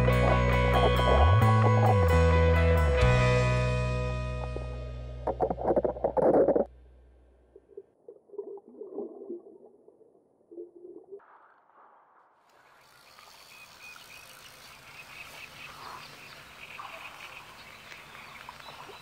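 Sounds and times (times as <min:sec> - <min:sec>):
lakeside ambience: 0:00.0 - 0:19.0
muffled underwater water sounds: 0:05.2 - 0:06.7, 0:07.6 - 0:12.8, 0:14.9 - 0:19.0.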